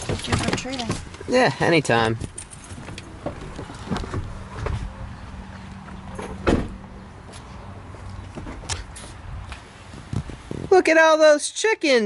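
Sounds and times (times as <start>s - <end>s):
car door shutting thud: 6.2s - 6.8s.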